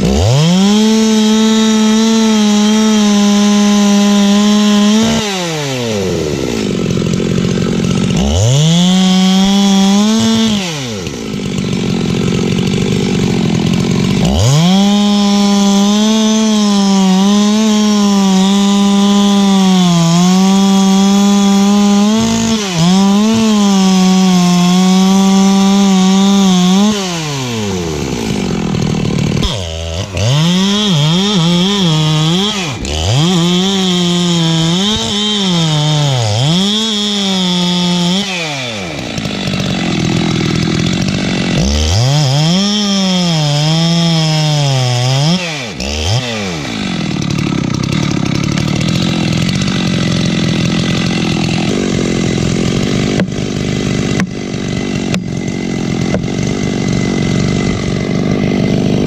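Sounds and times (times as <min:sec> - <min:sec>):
chainsaw cutting wood: 0:00.0 - 0:59.0
sharp knocks: 0:53.1 - 0:53.4, 0:56.1 - 0:56.3.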